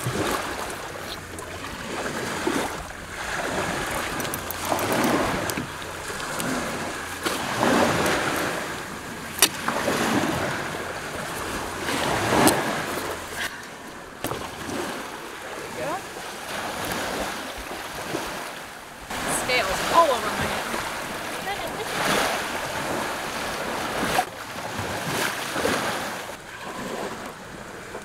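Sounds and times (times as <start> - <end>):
small waves washing onto shore: 0.0 - 28.0
sharp clicks: 3.9 - 6.6.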